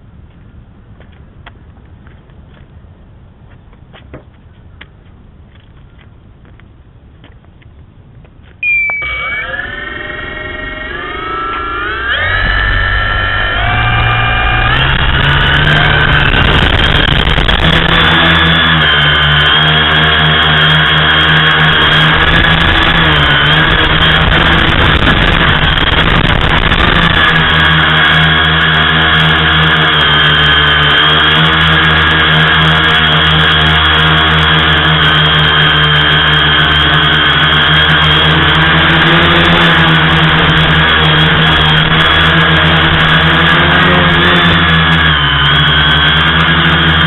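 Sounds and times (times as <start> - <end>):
electric motors and propellers whining: 8.6 - 47.0
wind buffeting: 11.7 - 19.4.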